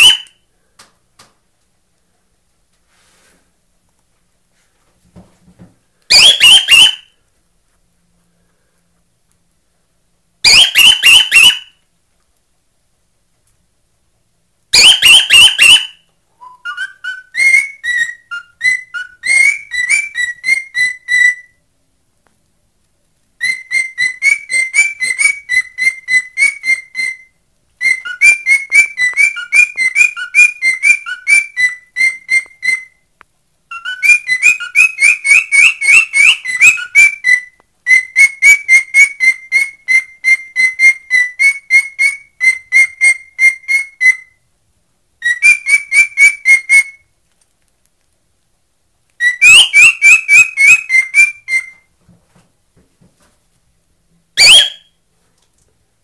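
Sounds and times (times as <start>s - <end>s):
cockatiel whistling: 0.0s - 0.4s, 6.1s - 7.1s, 10.4s - 11.8s, 14.7s - 21.6s, 23.4s - 33.0s, 33.7s - 44.4s, 45.2s - 47.0s, 49.2s - 51.9s, 54.4s - 55.0s.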